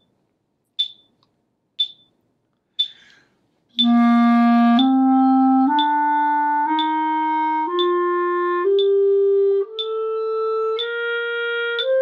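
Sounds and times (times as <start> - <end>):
metronome clicking: 0.8 - 2.2, 2.8 - 12.0
clarinet playing a scale: 3.7 - 12.0.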